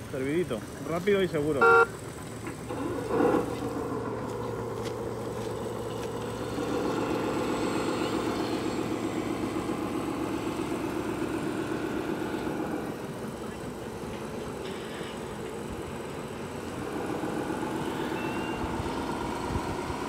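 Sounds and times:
model machine mechanical drone: 5.2s - 20.0s.

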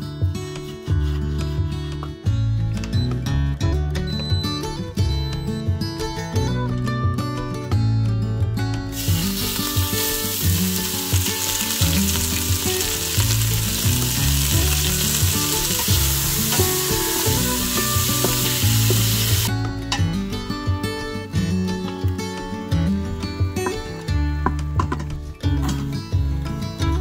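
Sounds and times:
background music: 0.0s - 27.0s
beef sizzling in hot oil: 8.9s - 19.5s.

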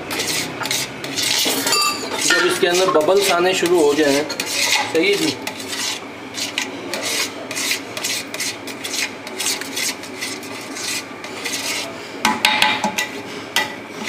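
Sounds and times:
metal spatula scraping a pot: 0.0s - 12.2s
pot ringing: 1.5s - 2.6s.

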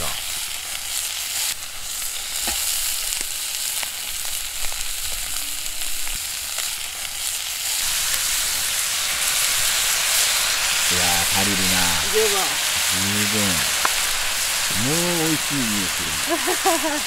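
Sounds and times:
meat sizzling in a frying pan: 0.0s - 17.0s.

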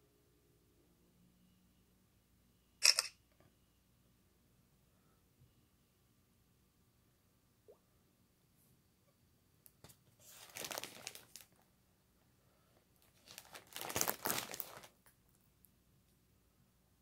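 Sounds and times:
plastic packaging crinkling: 10.2s - 11.6s, 13.0s - 15.0s.

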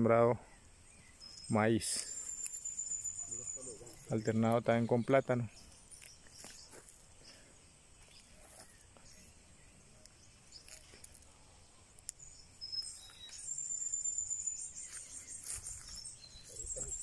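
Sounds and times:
high thin chirping call: 0.0s - 7.4s, 12.0s - 17.0s
faint rustles and clicks: 5.6s - 9.4s, 10.0s - 11.4s, 14.7s - 17.0s.

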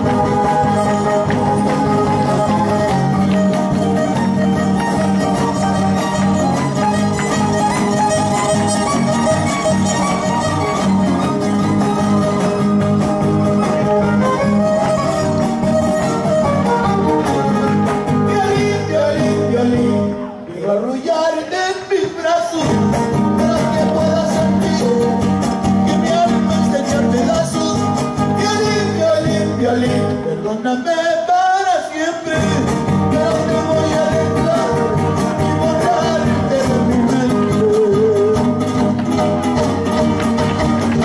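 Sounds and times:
violin melody: 0.0s - 18.4s
strummed guitars: 0.0s - 31.4s, 32.0s - 41.0s
person singing: 16.0s - 40.0s.

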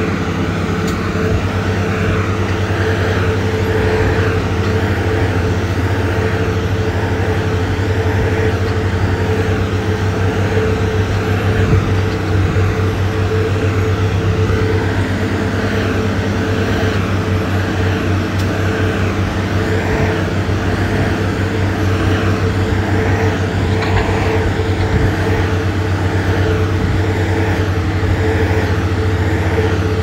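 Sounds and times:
diesel engine running: 0.0s - 30.0s.

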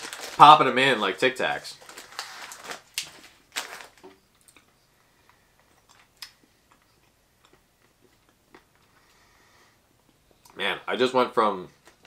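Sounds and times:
plastic bag crinkling: 0.0s - 4.5s
quiet chewing: 4.3s - 9.3s.

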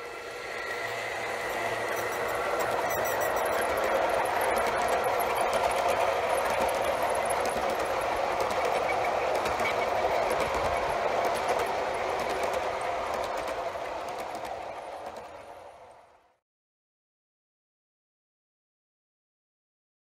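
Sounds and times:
model train wheels rumbling: 0.0s - 16.3s
clicks at rail joints: 1.9s - 15.4s.

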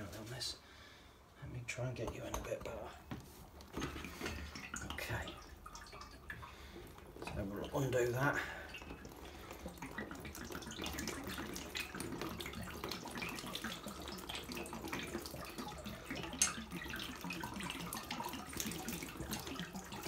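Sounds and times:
water trickling from valve: 2.0s - 20.0s.

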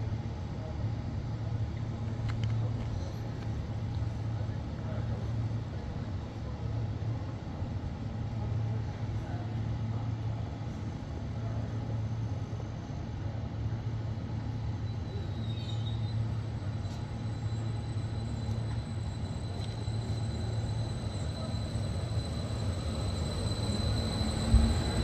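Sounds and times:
train rumbling past: 0.0s - 25.0s
high wheel squeal: 14.8s - 25.0s.

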